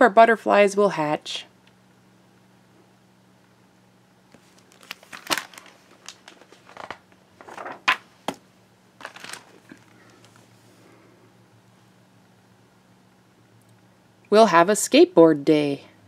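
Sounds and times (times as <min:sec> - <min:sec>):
book pages turning and rustling: 0:04.3 - 0:08.4, 0:09.0 - 0:10.7
page flaps and knocks: 0:04.4 - 0:08.4, 0:09.0 - 0:09.9.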